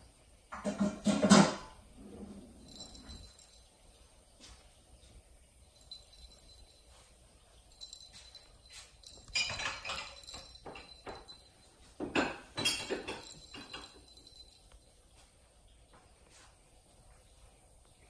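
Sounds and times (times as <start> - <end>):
ball toy clinking: 2.6 - 4.2, 5.7 - 7.0, 7.6 - 15.0.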